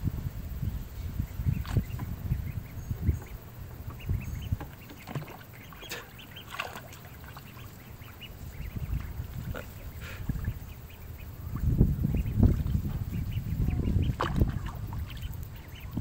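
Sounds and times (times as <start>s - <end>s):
ducks quacking: 1.4s - 16.0s.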